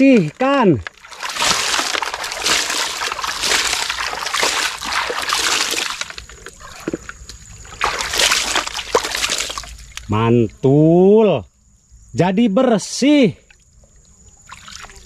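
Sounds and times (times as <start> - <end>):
water splashing and sloshing: 0.0 - 10.2, 13.4 - 15.0
gravel scraping in plastic: 0.2 - 7.4.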